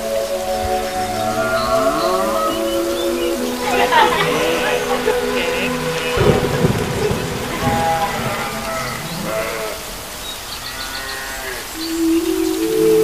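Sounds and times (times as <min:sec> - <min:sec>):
soft instrumental music: 0:00.0 - 0:08.5.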